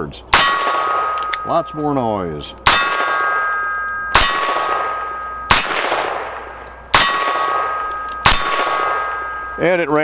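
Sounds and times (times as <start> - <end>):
steel target ringing: 0.3 - 10.0.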